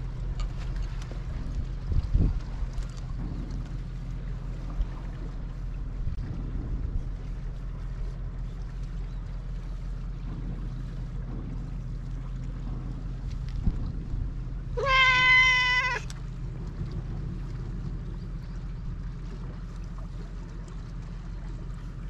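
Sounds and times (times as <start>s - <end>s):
low background rumble: 0.0s - 22.0s
cat meowing: 14.8s - 16.1s.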